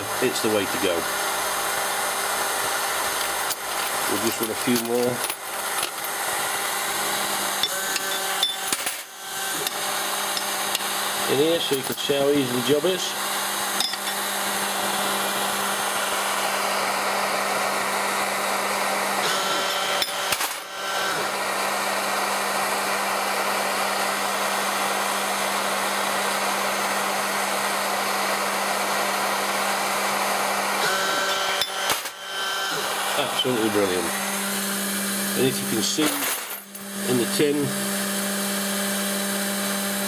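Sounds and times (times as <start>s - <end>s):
gas torches hissing: 0.0s - 8.5s, 9.4s - 17.2s, 32.7s - 34.5s, 35.4s - 36.2s
machine humming: 0.0s - 40.0s.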